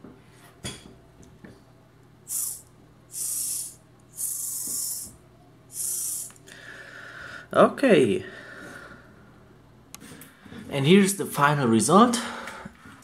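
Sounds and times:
mouth hissing sounds: 2.3 - 6.4.

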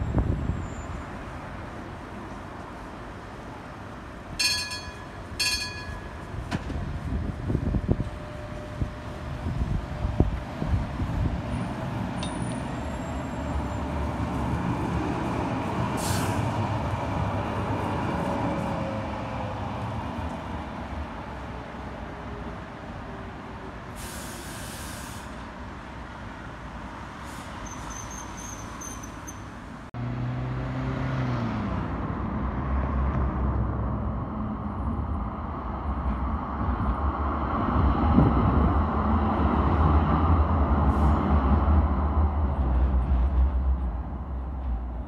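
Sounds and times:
tram wheels rumbling on rails: 1.0 - 24.0, 31.4 - 45.0
tram motors humming: 1.2 - 23.9
car passing: 30.0 - 43.0.

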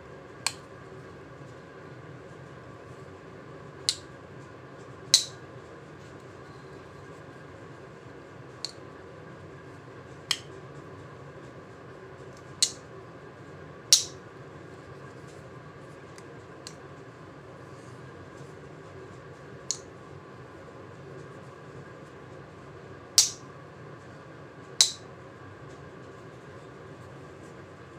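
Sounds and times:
pocketknife blades snapping: 13.9 - 14.2, 23.2 - 23.4, 24.8 - 25.0.

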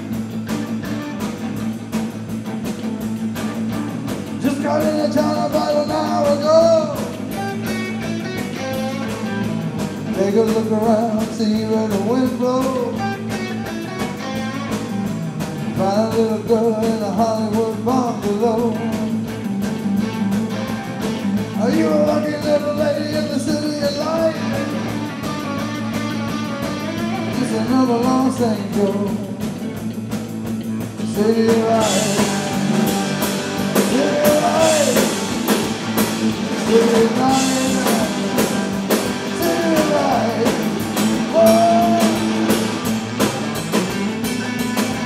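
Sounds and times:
drum kit: 0.0 - 45.0
electric guitars: 0.0 - 45.0
man singing: 4.4 - 8.0, 10.1 - 13.8, 15.7 - 19.2, 21.5 - 25.0, 27.0 - 29.5, 31.0 - 32.6, 33.8 - 35.3, 36.6 - 42.6.

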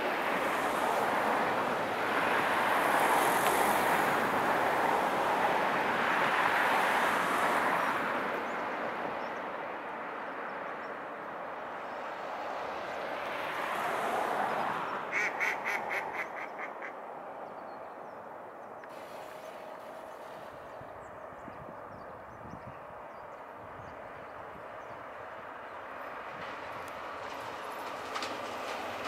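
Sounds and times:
duck quacking: 15.1 - 17.0
rushing background hiss: 18.9 - 21.4.

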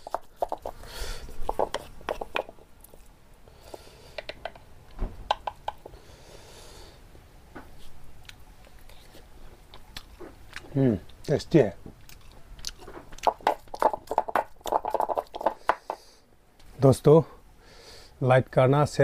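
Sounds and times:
rubbing and scraping in bowl: 0.0 - 2.7, 13.4 - 15.9
spoon tapping mortar: 1.4 - 2.6, 4.2 - 4.6, 5.3 - 5.9, 13.4 - 16.0.

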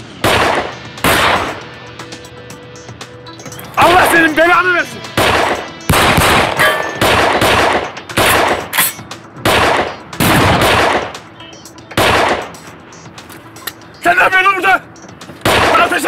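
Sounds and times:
pistol shots echoing: 0.2 - 1.8, 5.1 - 11.3, 12.0 - 12.7, 15.4 - 16.0.

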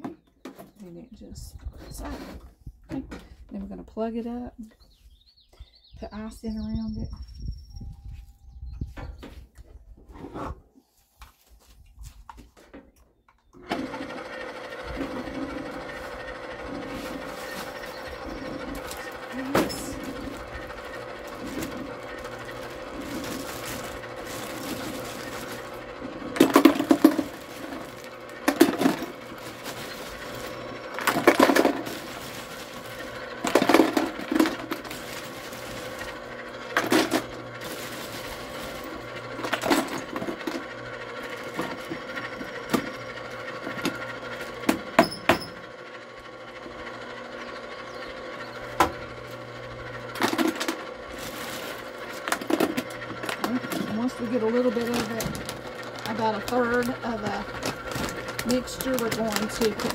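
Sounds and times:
ice cream maker motor humming: 13.4 - 59.9
ice cubes clattering: 15.4 - 40.6, 50.1 - 59.9.

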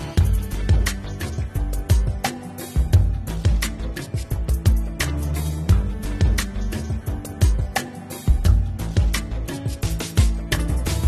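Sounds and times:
drums: 0.0 - 11.0
bass line: 2.8 - 11.0.

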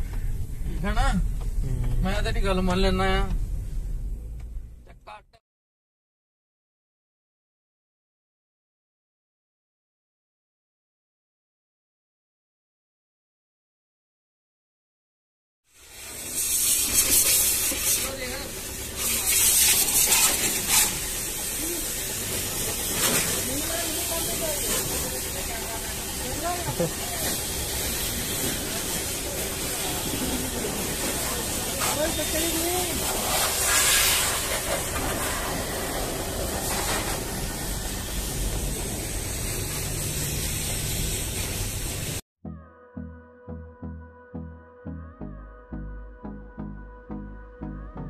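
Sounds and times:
water spray hissing: 15.8 - 42.2.

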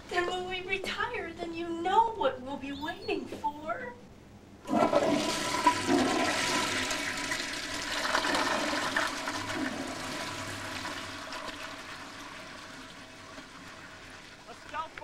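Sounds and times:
toilet flushing: 4.6 - 15.0.

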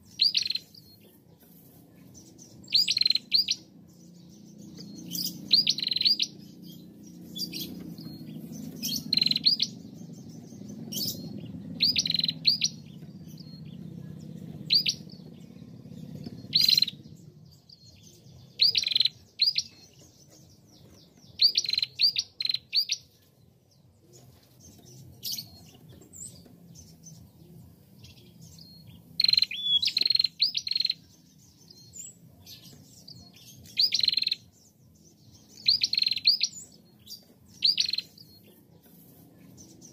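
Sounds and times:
bird chirping: 0.0 - 39.9
low background rumble: 2.3 - 21.4.

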